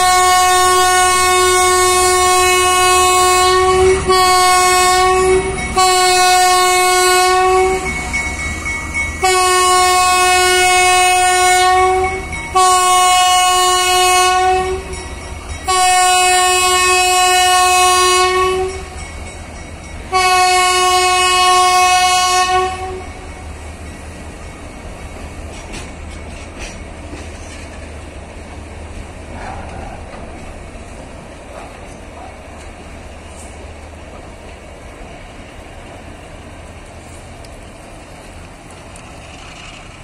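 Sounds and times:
locomotive horn blasts: 0:00.0 - 0:08.1, 0:09.1 - 0:15.0, 0:15.6 - 0:19.0, 0:20.1 - 0:23.2
train rumbling past: 0:00.0 - 0:40.0.

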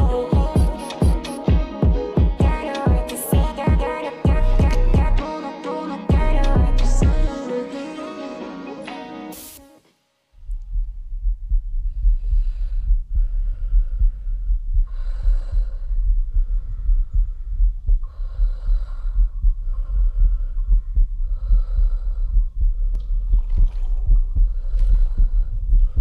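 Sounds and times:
fast thudding heartbeat: 0:00.0 - 0:05.2, 0:06.1 - 0:07.3, 0:10.4 - 0:26.0
loud breathing: 0:11.9 - 0:22.9.

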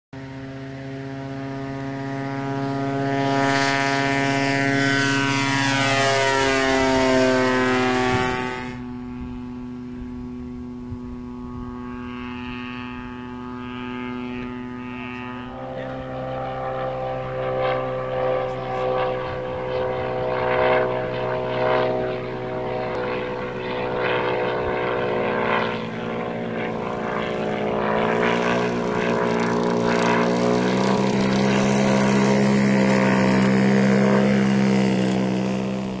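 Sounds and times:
light aircraft engine and propeller: 0:00.2 - 0:36.0.

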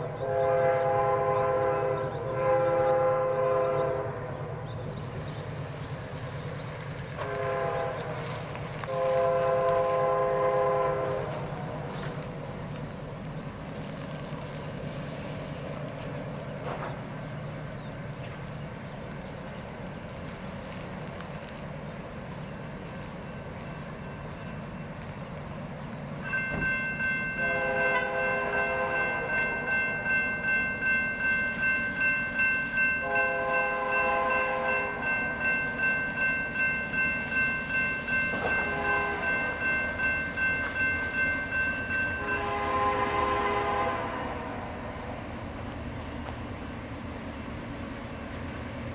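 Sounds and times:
locomotive horn: 0:00.1 - 0:04.5, 0:07.2 - 0:11.7, 0:27.4 - 0:29.7, 0:33.0 - 0:35.1, 0:38.3 - 0:39.6, 0:42.1 - 0:44.8
crossing warning bell ringing: 0:22.9 - 0:43.9.

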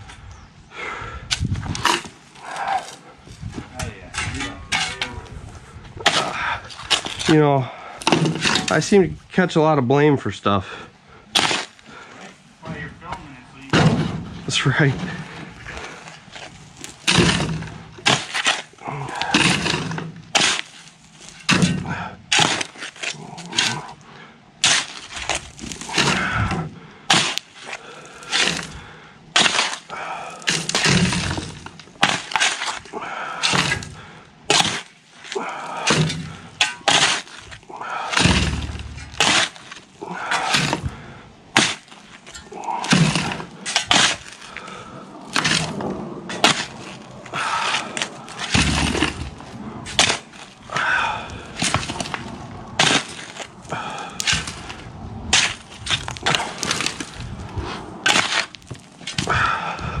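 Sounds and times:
dull thuds: 0:12.6 - 0:22.8, 0:30.5 - 0:32.6, 0:35.8 - 0:37.3, 0:38.1 - 0:44.4, 0:45.3 - 1:00.0
shovel scraping into gravelly soil: 0:15.8 - 0:21.5, 0:27.1 - 0:28.8, 0:29.4 - 0:33.9, 0:34.5 - 0:40.9, 0:41.6 - 0:59.2.

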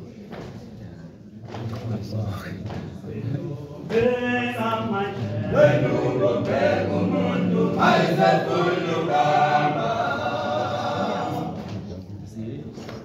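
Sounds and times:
men singing a cappella: 0:03.0 - 0:11.9.

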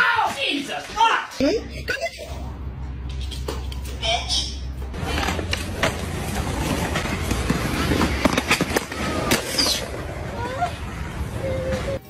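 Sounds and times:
skateboard wheels rolling on concrete: 0:04.8 - 0:12.0.

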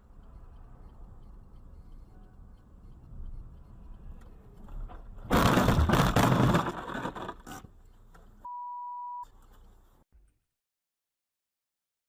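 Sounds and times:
steady high beep: 0:00.0 - 0:04.2, 0:08.4 - 0:09.3
car crash impact and scraping: 0:04.9 - 0:07.6.

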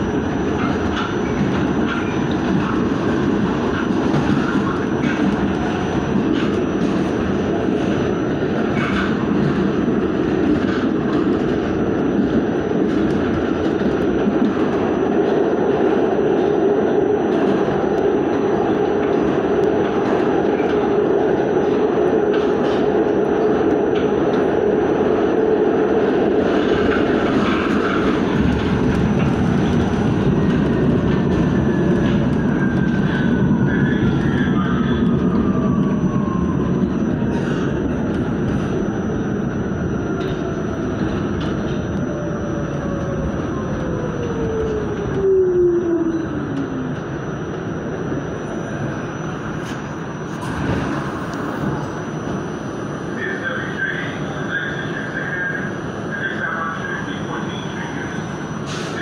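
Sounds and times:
subway train rumble and wheel noise: 0:00.0 - 0:59.0.

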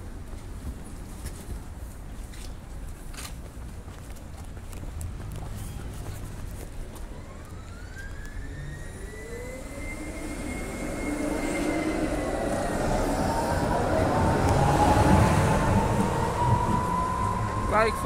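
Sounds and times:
tram wheels rumbling on rails: 0:00.0 - 0:18.0
tram electric drive whine: 0:05.3 - 0:18.0.

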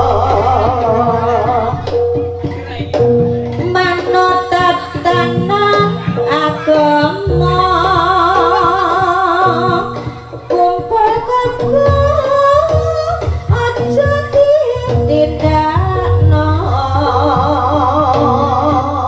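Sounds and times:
drum beats: 0:00.0 - 0:19.0
gamelan notes: 0:00.0 - 0:19.0
wavering sustained melody: 0:15.9 - 0:19.0.

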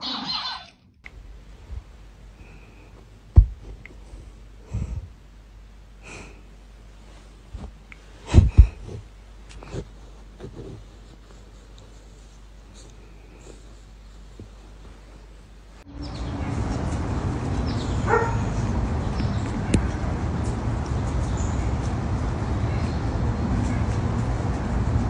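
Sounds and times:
cat snorting and sniffing: 0:07.6 - 0:14.6.

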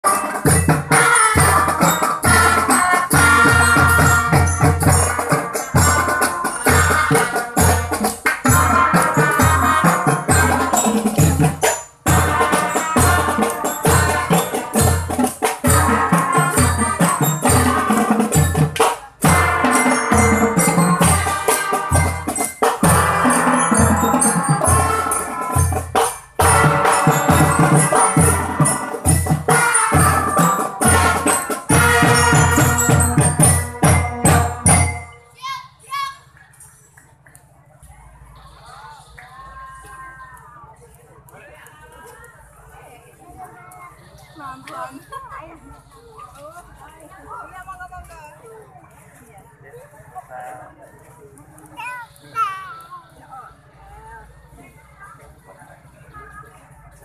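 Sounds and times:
cymbals: 0:00.0 - 0:35.4
marching band melody: 0:00.0 - 0:35.6
snare and tenor drums: 0:00.1 - 0:35.2.

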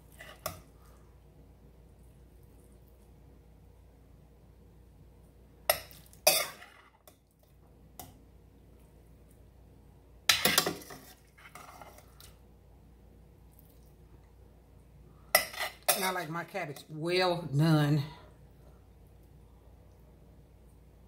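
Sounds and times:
metal spoon scraping a steel pot: 0:15.4 - 0:16.1.

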